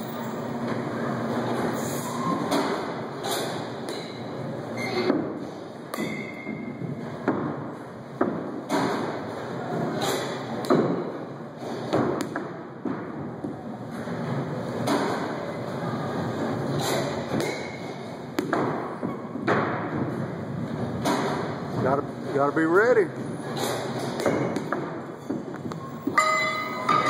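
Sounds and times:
steady background noise: 0:00.0 - 0:27.0
balls striking netting and padding: 0:00.6 - 0:27.0
baseball bat hitting balls: 0:02.4 - 0:04.3, 0:05.1 - 0:13.5, 0:14.8 - 0:15.4, 0:16.7 - 0:20.3, 0:20.9 - 0:21.7, 0:23.6 - 0:27.0.

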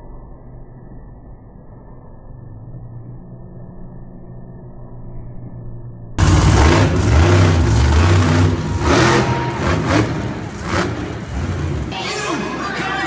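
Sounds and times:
truck engines revving hard: 0:06.2 - 0:13.0.

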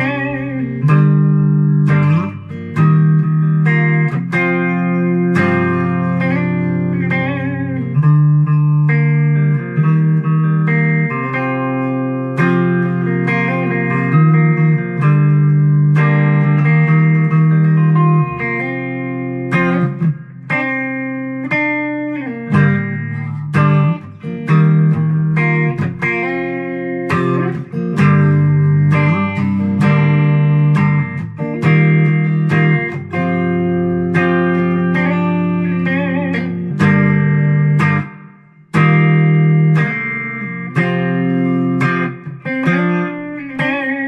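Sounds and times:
electric guitar playing: 0:00.0 - 0:44.0.

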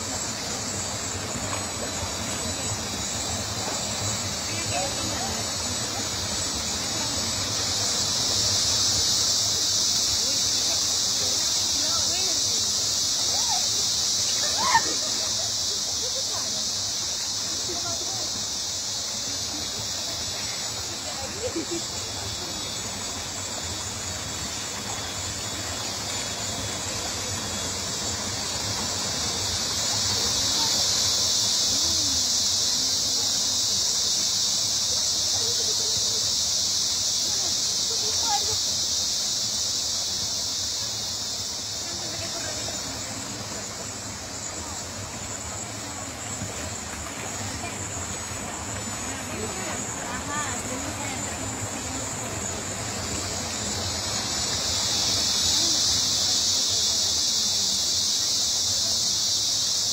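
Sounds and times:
cicadas buzzing: 0:00.0 - 0:59.9
flowing water: 0:00.0 - 0:59.9
insects droning: 0:00.0 - 0:59.9
river water rushing: 0:41.6 - 0:56.4.

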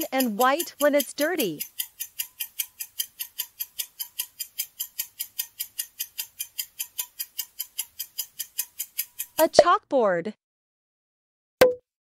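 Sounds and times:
countdown timer ticking: 0:00.0 - 0:09.9.

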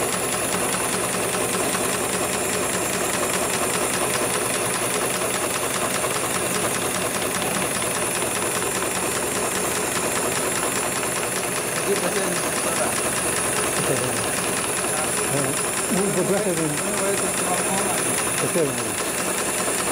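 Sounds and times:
sewing machine clattering: 0:00.0 - 0:19.9.

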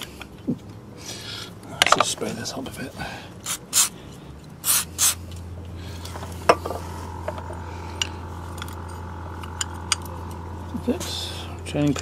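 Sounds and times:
aerosol spray hissing: 0:03.4 - 0:03.9, 0:04.6 - 0:05.2.

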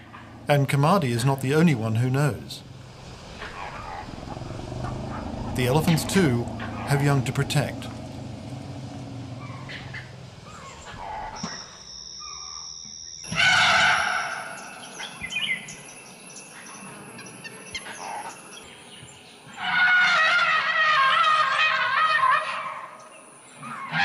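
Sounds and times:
birds chirping: 0:00.0 - 0:24.0
louder wavering call: 0:03.4 - 0:15.3
high insect tone: 0:09.8 - 0:19.2.

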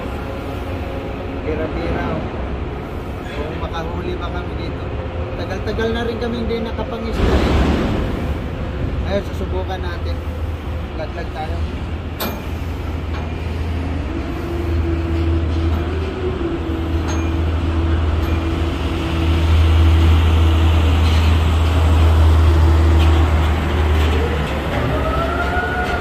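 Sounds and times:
constant hum tone: 0:00.0 - 0:26.0
ship machinery drone: 0:00.0 - 0:26.0.

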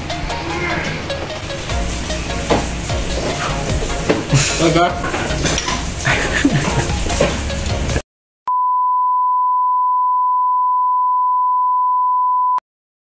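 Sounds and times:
kitchen clatter: 0:05.0 - 0:07.5.

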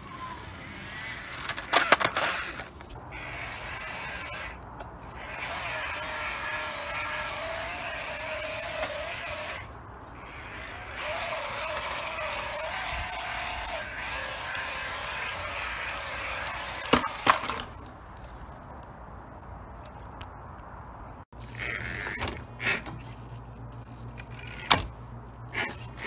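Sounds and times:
toy car electric motor whining: 0:00.0 - 0:17.6, 0:21.4 - 0:22.8, 0:23.8 - 0:24.9, 0:25.5 - 0:26.0.

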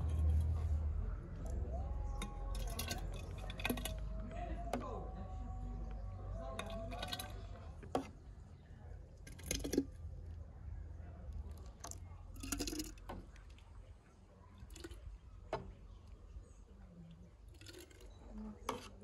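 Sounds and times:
ladle clinking on metal and glass: 0:02.2 - 0:04.1
wet jam sounds: 0:05.8 - 0:19.0.

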